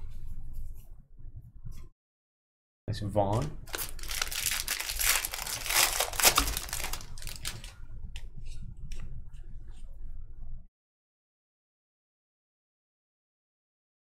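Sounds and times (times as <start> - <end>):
foil wrapper tearing and crinkling: 3.7 - 7.8.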